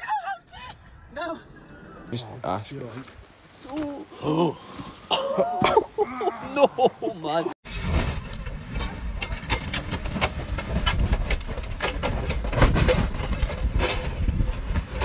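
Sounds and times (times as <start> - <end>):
metal clanks and scrapes: 7.6 - 15.0.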